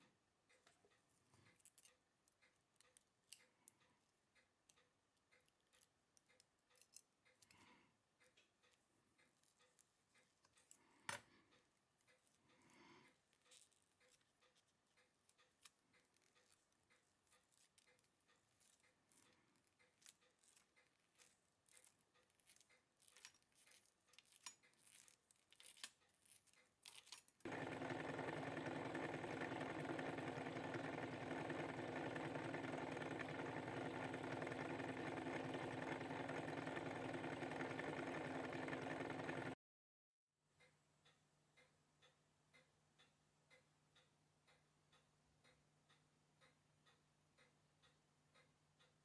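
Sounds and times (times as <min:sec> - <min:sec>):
small clicks of watch parts: 0:00.4 - 0:27.5
cleaning machine whirring: 0:27.5 - 0:39.6.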